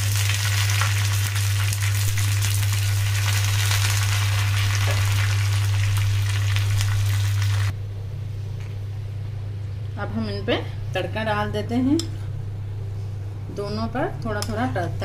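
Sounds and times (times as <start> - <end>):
hot oil sizzling and crackling: 0.0 - 7.8
steady low hum: 0.0 - 15.0.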